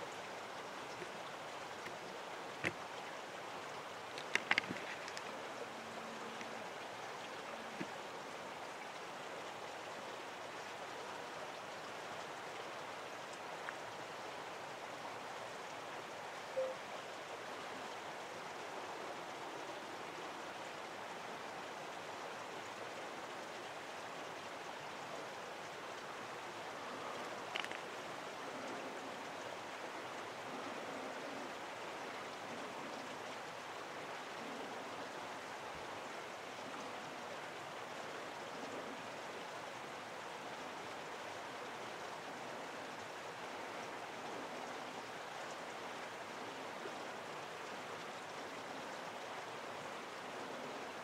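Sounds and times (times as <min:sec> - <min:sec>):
short faint tone: 0:16.6 - 0:16.8.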